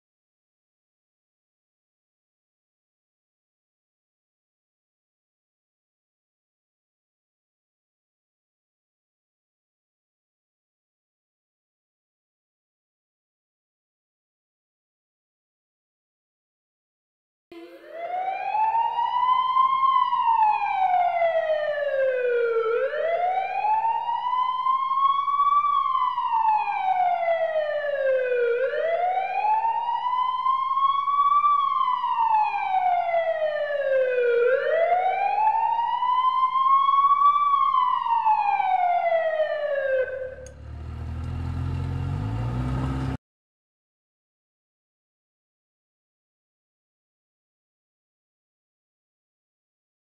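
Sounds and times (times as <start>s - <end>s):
siren wailing: 17.6s - 43.1s
low rough horn blast: 40.4s - 43.2s.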